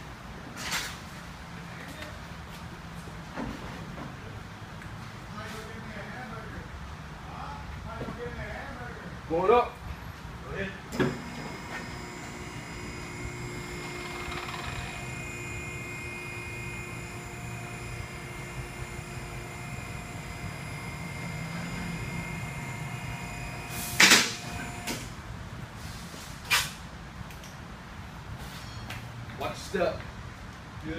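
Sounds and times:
hydraulic pump motor humming: 11.0 - 25.0
loud sharp noise: 23.6 - 25.1.

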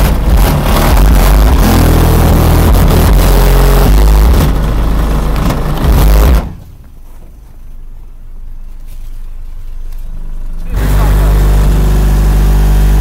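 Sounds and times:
loud bass-heavy music from subwoofers: 0.0 - 6.7, 10.1 - 13.0
car engine idling: 0.0 - 13.0.

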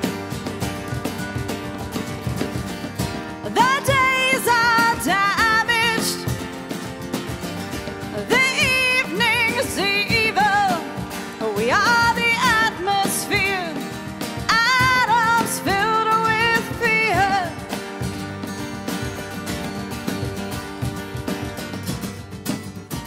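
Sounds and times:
cajon: 0.0 - 23.0
strummed acoustic guitars: 0.0 - 23.0
woman singing with vibrato: 3.4 - 6.4, 8.0 - 17.7.

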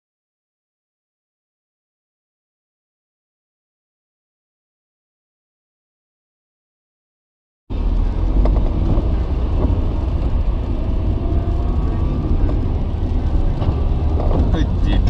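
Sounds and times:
car engine and tyre rumble: 7.7 - 15.0.

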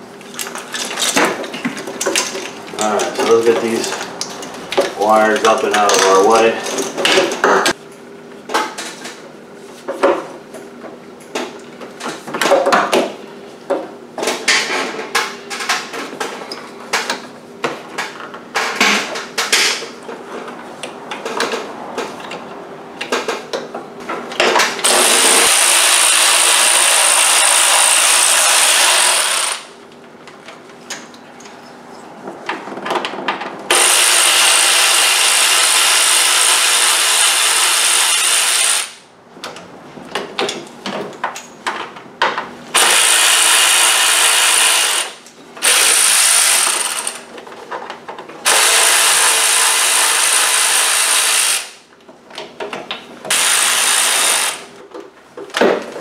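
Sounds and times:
power ratchet running: 24.8 - 29.8, 33.7 - 39.0, 42.8 - 47.3, 48.4 - 51.8, 53.3 - 54.7.

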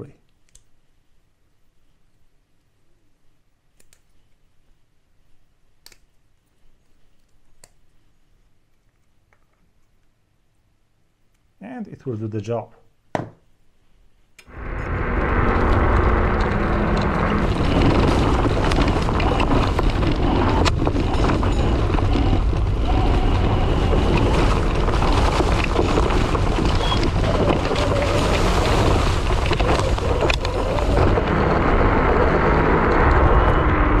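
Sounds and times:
scooter tyre and road noise: 14.5 - 34.0
wind buffeting microphone: 14.5 - 34.0.

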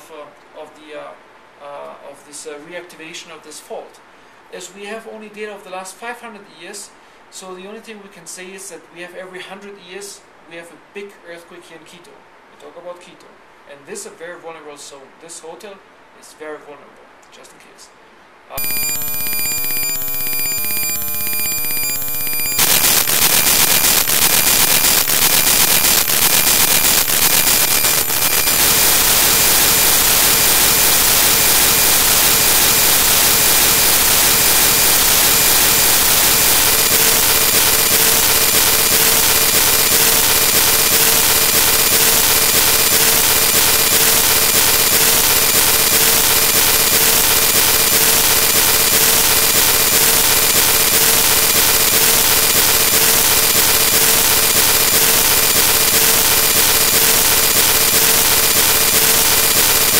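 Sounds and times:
buzzing chord of steady tones: 18.6 - 51.2
digital clicks: 18.6 - 59.9
faint steady tone: 18.6 - 59.9
harsh digital hiss: 18.6 - 59.9.

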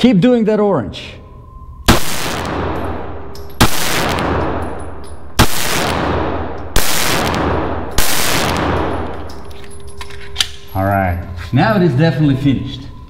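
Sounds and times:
echo ringing off concrete walls: 0.0 - 13.0
pistol shots: 1.9 - 9.4.

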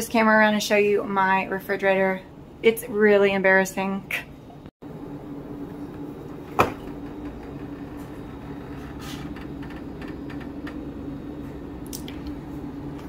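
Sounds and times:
steady low hum: 4.8 - 13.0
refrigerator door opening thump: 6.6 - 7.0.

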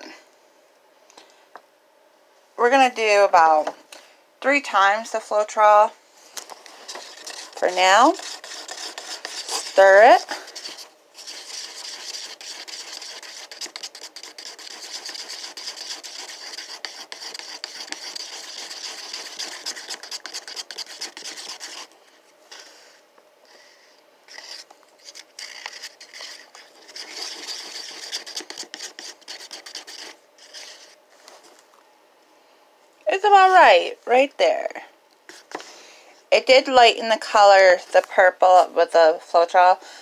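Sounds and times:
stick scraping inside paper cup: 6.4 - 21.9, 24.3 - 31.4.

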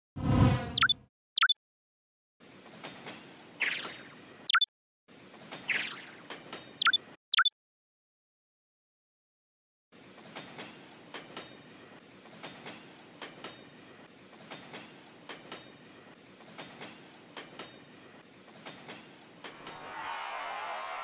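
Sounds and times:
wheels clacking over rail joints: 10.0 - 19.8.

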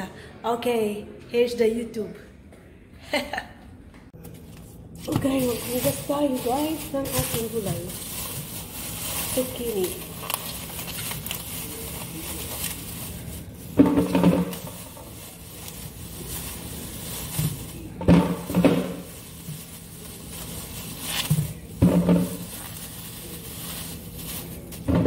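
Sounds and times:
vegetables and kitchenware knocking: 13.7 - 15.0, 18.0 - 19.2, 21.8 - 22.6.

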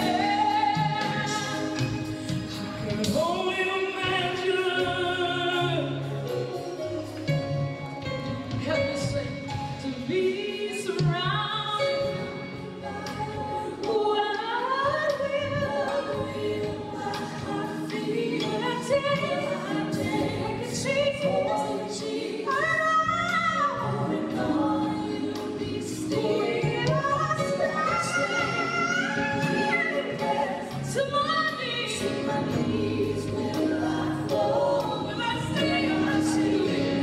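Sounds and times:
backing singers: 12.8 - 37.0.

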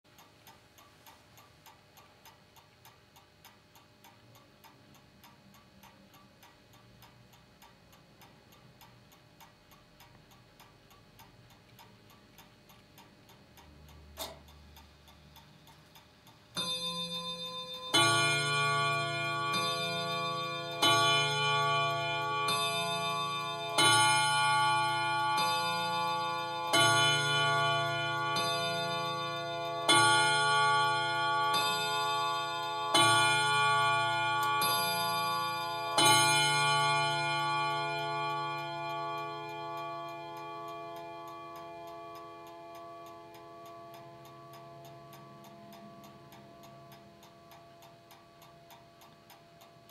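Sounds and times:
clock click: 0.1 - 49.9
clock ticking: 0.1 - 49.9
clock chiming: 16.6 - 49.9.

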